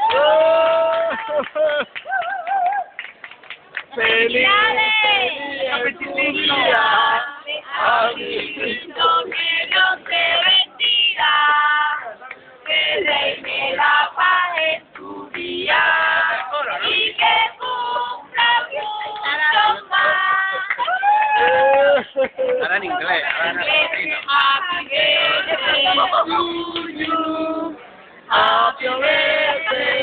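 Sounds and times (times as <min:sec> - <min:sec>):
group singing birthday song: 0:04.0 - 0:20.8, 0:23.0 - 0:30.0.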